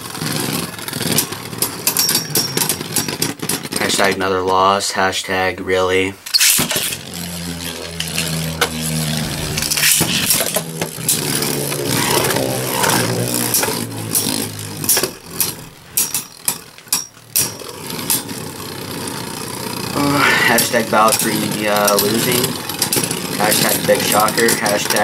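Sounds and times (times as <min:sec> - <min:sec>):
spinning tops whirring: 0:00.0 - 0:04.4, 0:06.2 - 0:25.0
spinning tops clacking together: 0:00.5 - 0:03.8, 0:19.8 - 0:25.0.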